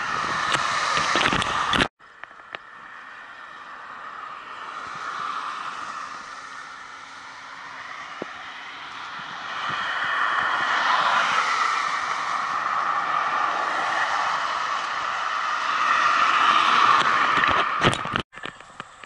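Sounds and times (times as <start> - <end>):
wind noise on microphone: 0.0 - 1.9, 4.6 - 19.0
distant road traffic hiss: 0.0 - 19.0.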